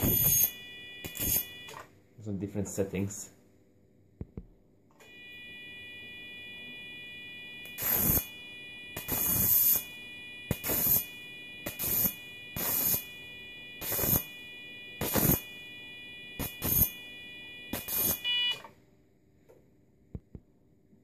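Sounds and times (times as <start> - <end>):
steady high activation tone: 0.0 - 1.8, 5.0 - 18.4
short hissing electric arcs: 9.0 - 9.8, 10.5 - 11.1, 11.7 - 13.1, 13.8 - 14.3, 15.0 - 15.4, 17.7 - 18.2.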